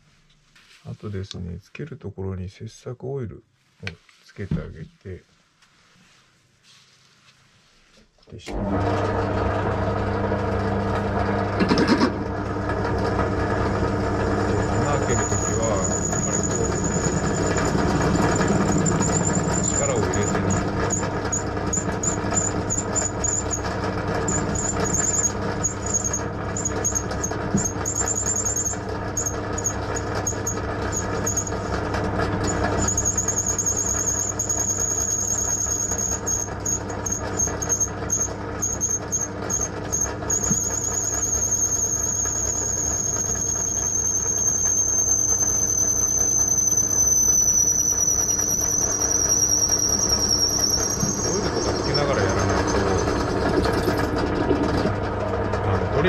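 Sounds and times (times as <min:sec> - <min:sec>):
drill press motor hum: 0:08.5 - 0:56.0
drill bit squealing in steel: 0:14.0 - 0:54.2.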